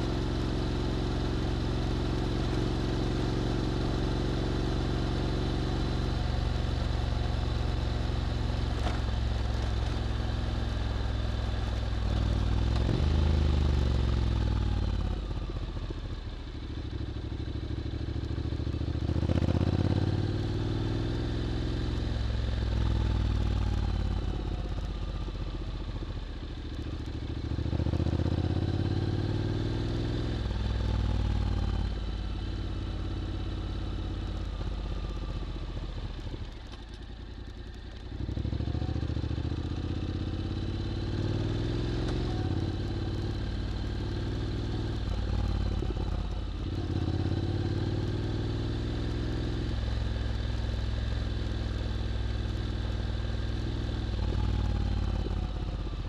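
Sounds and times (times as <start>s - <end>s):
motorcycle engine revving: 0.0s - 16.0s, 17.1s - 26.1s, 27.0s - 56.0s.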